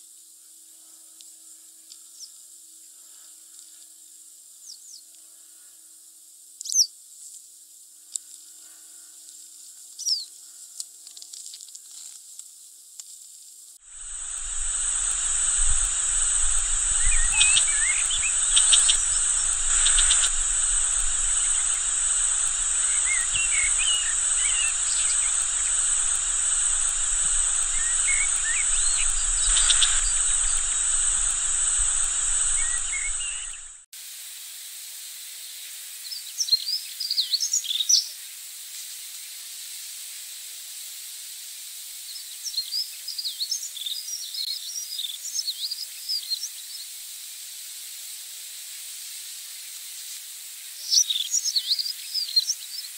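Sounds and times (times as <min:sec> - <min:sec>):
insects chirring: 0:00.1 - 0:33.9, 0:35.5 - 0:52.9
short high bird calls: 0:14.3 - 0:33.8
short bird calls: 0:16.6 - 0:31.1.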